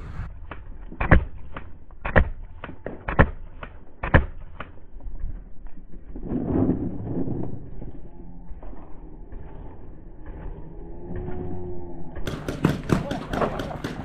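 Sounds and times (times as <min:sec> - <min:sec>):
slowed paintball marker shots: 0:00.4 - 0:05.0, 0:12.2 - 0:14.0.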